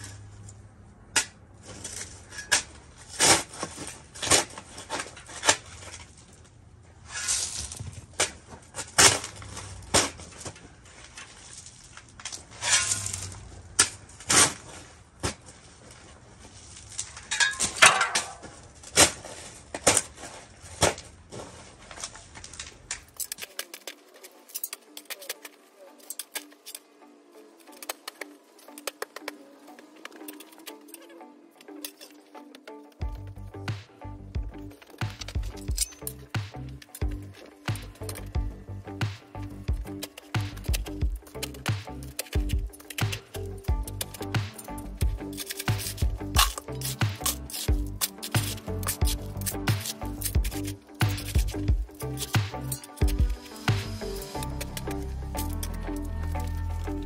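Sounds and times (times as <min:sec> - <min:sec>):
shovel scraping soil: 0:01.7 - 0:06.2, 0:07.0 - 0:10.6, 0:12.4 - 0:15.7, 0:16.4 - 0:26.8, 0:27.6 - 0:32.5, 0:34.6 - 0:57.0
shovel clinking on stones: 0:23.0 - 0:26.8, 0:34.8 - 0:38.3, 0:39.9 - 0:56.8
background music: 0:23.2 - 0:57.0.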